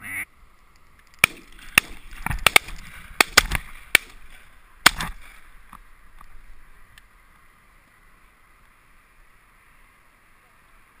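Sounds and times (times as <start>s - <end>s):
shotguns firing: 1.2s - 5.4s.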